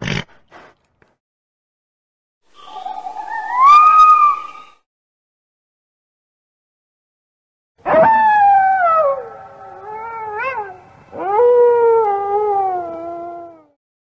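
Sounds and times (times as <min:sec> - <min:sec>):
wolf howling: 0:02.8 - 0:04.6, 0:07.8 - 0:13.8.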